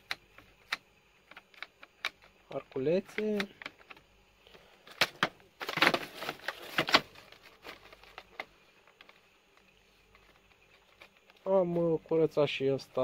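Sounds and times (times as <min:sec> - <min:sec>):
plastic parts clicking: 0:00.0 - 0:04.1, 0:04.8 - 0:11.5
plastic parts rattling and scraping: 0:04.8 - 0:12.0.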